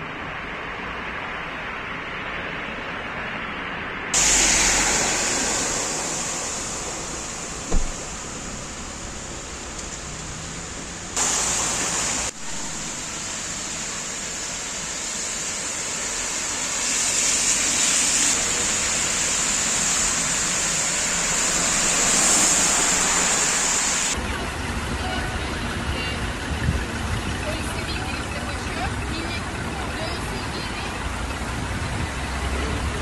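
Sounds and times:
cars driving through floodwater: 0:04.1 - 0:33.0.

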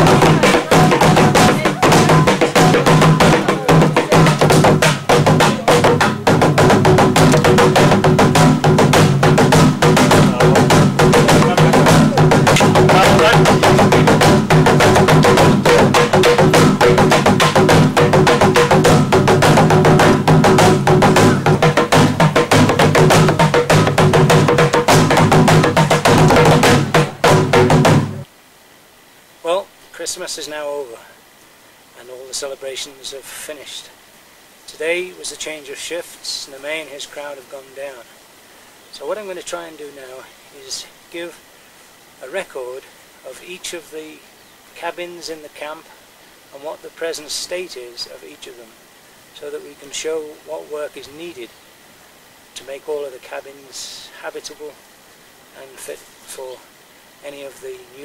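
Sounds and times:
large drum beaten with sticks: 0:00.0 - 0:28.3.

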